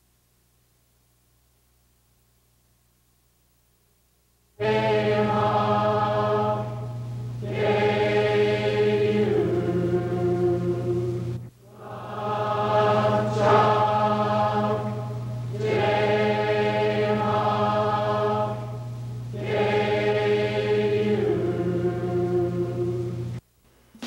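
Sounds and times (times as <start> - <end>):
choir singing held chords: 4.6 - 23.4.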